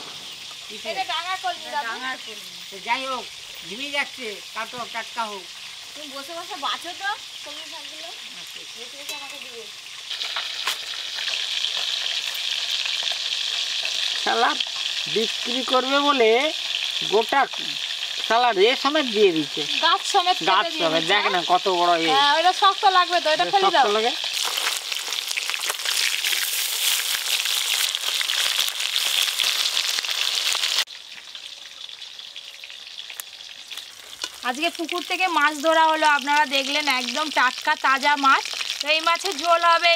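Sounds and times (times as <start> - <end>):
fish sizzling in oil: 0.0 - 39.9.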